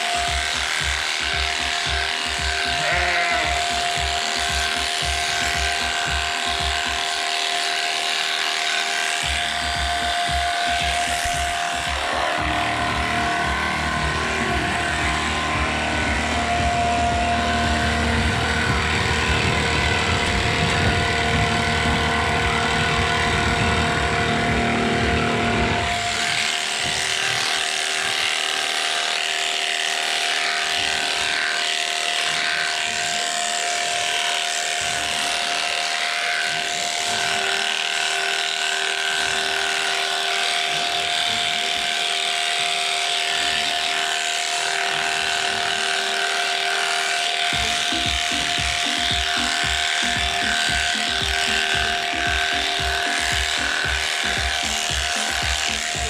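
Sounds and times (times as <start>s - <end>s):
electric shears whining: 0.0s - 56.0s
heavy low rumble: 12.0s - 26.2s.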